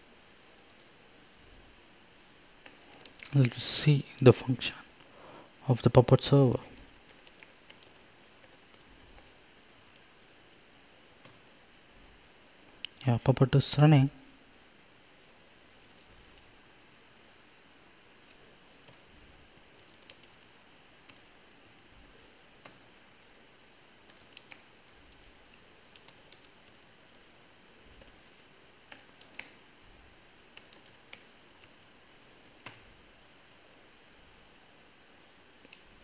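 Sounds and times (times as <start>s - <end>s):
faint keystrokes on keyboard: 0.4s - 1.0s, 2.6s - 4.3s, 6.6s - 11.5s, 15.7s - 16.5s, 18.2s - 19.2s, 19.8s - 22.0s, 22.6s - 23.0s, 24.0s - 27.3s, 27.9s - 29.6s, 30.5s - 33.6s, 35.6s - 36.0s.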